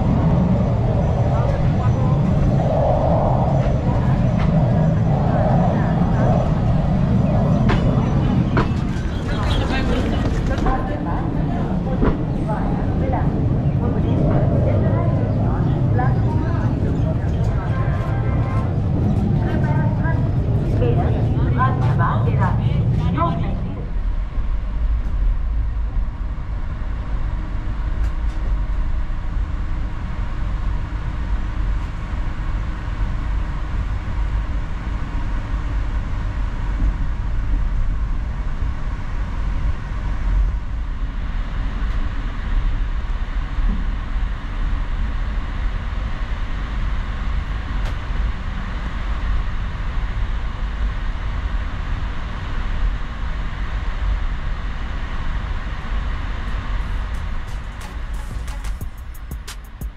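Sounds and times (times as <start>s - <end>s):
train wheels rumbling: 56.2s - 59.9s.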